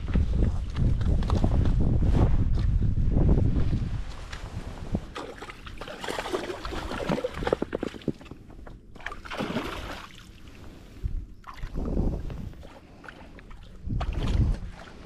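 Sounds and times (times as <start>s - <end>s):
water sloshing and splashing: 4.3s - 15.0s.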